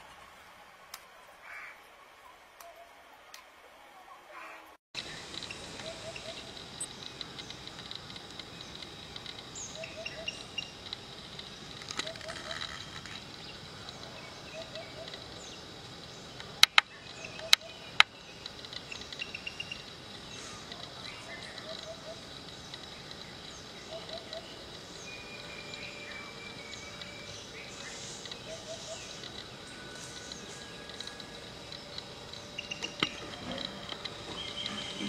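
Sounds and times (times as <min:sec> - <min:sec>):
birds chirping: 0:04.3 - 0:35.0.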